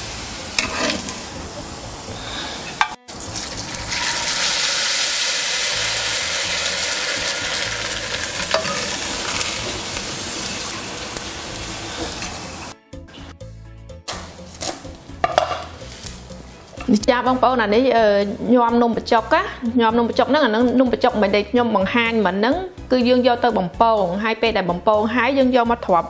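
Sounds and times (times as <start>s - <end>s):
noodles deep-frying in oil: 0.0s - 12.8s.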